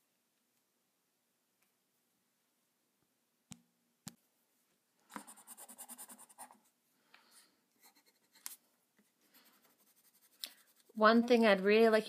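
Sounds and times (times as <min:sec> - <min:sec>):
pencil scratching on paper: 0:05.2 - 0:06.7, 0:07.8 - 0:12.0.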